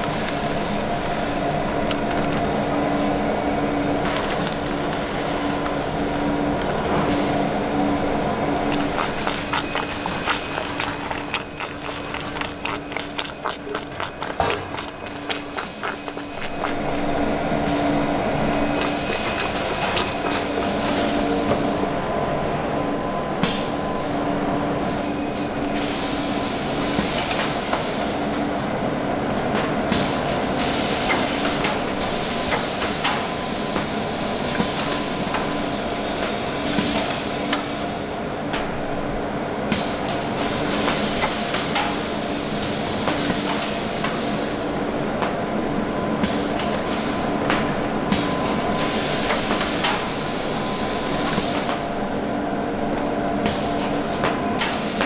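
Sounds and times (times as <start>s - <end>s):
machine hum: 0.0s - 25.7s.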